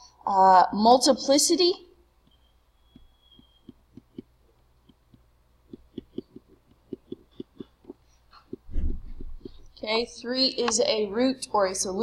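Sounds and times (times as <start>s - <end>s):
faint low hum: 0.0s - 12.0s
stylus tapping on tablet screen: 2.2s - 9.7s.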